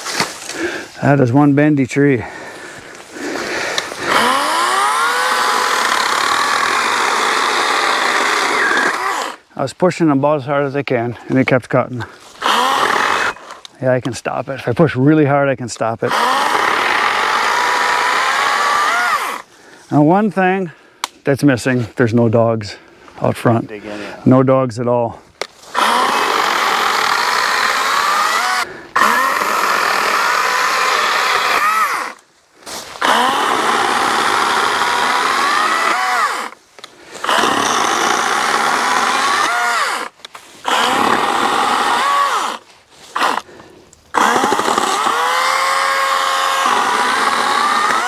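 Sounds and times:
electric chainsaw cutting brush: 4.0s - 9.4s, 12.4s - 13.6s, 16.1s - 19.4s, 25.7s - 32.2s, 33.0s - 36.6s, 37.2s - 43.5s, 44.1s - 48.0s.

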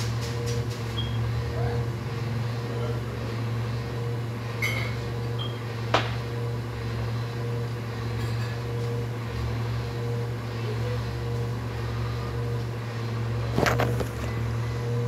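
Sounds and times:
garbage truck engine humming: 0.0s - 15.0s.

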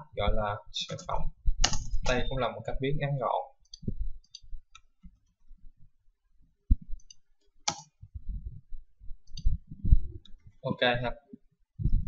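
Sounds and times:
computer keyboard keystrokes: 0.9s - 2.2s, 7.0s - 7.9s
mouse clicks: 0.9s - 2.2s, 7.0s - 7.9s, 9.3s - 9.6s.

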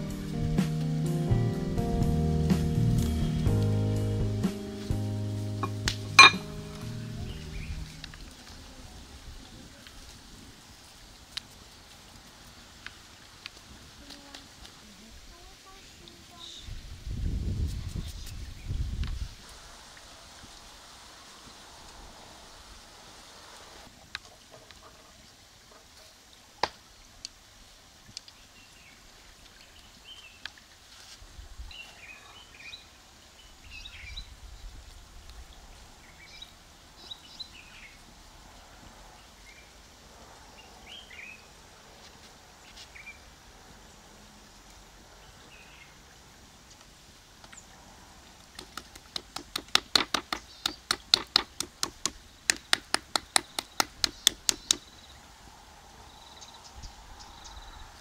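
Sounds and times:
hands patting and clapping: 5.6s - 6.5s, 48.6s - 54.8s.

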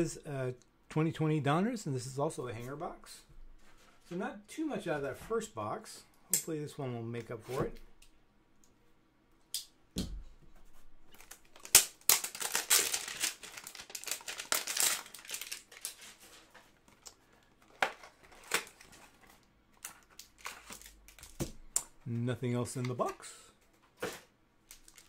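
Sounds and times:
packaging tearing and crinkling: 11.1s - 16.4s, 19.8s - 21.4s, 24.7s - 25.0s.

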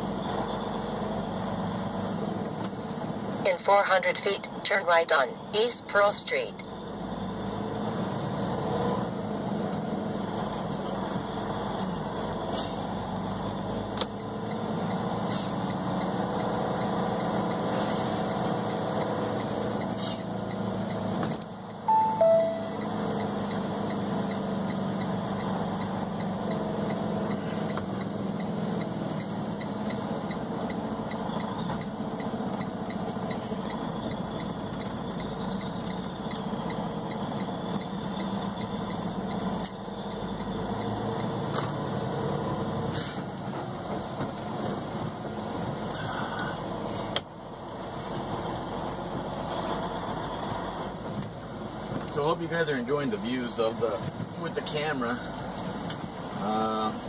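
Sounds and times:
two-note electronic chime: 21.9s - 22.9s.

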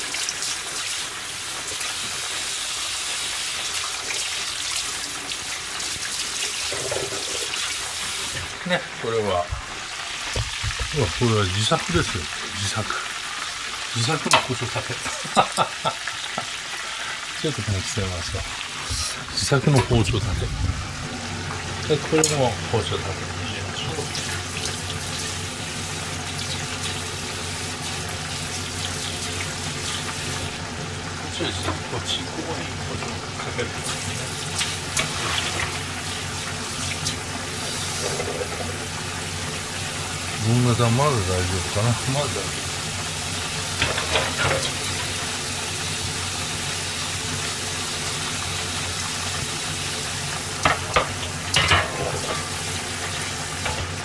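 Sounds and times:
tap water splashing into metal sink: 6.4s - 8.5s, 9.5s - 11.2s, 50.6s - 52.6s.

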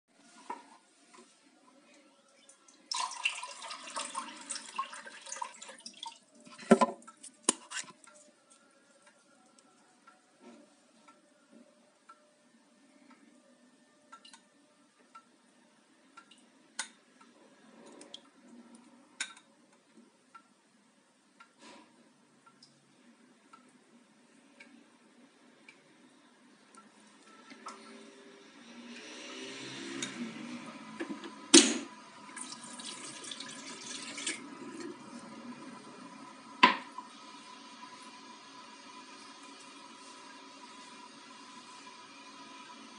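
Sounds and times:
water pouring and splashing: 2.9s - 7.9s, 32.2s - 35.2s.

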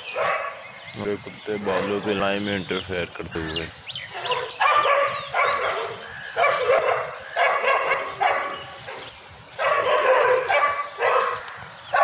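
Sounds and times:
dogs barking: 0.0s - 0.8s, 1.5s - 2.3s, 4.1s - 12.0s.

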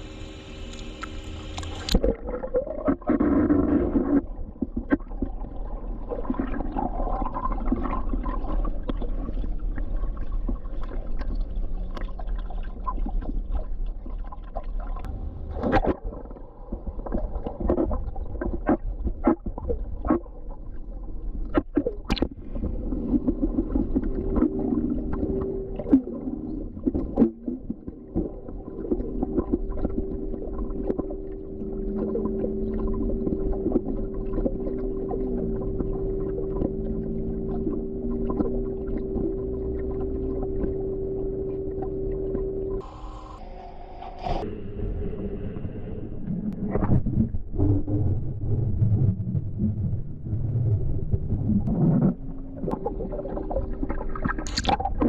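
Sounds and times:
steady hum: 0.0s - 8.2s, 20.4s - 55.0s
bubbles gurgling: 0.0s - 42.9s, 46.1s - 55.0s
muffled underwater rumble: 0.0s - 55.0s
clicks and pops in water: 21.5s - 22.4s, 53.8s - 55.0s.

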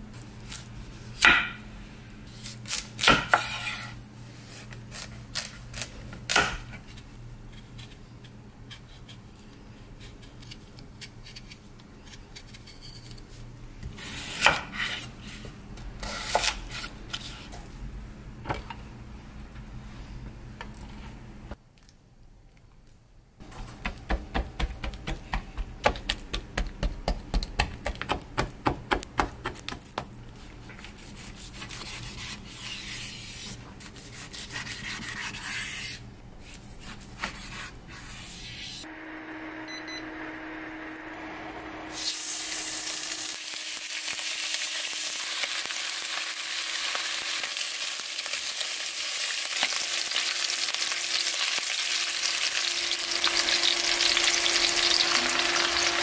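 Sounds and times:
meat sizzling in hot pot: 41.9s - 56.0s.

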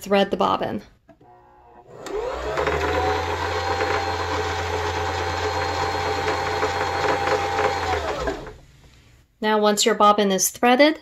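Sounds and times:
sewing machine motor whirring: 1.2s - 8.6s.

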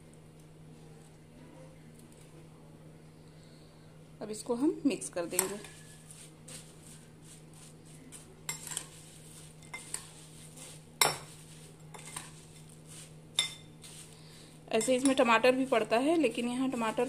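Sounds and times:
spoon stirring dry snack mix: 5.2s - 17.0s
spoon clinking against glass: 13.4s - 13.8s.

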